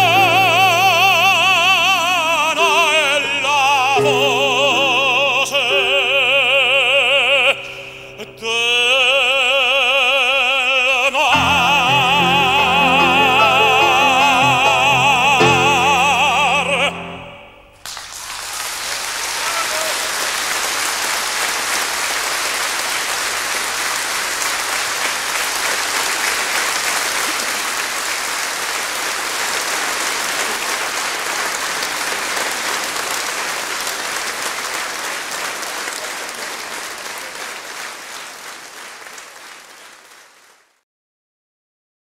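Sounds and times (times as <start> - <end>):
audience applauding: 17.8 - 40.8.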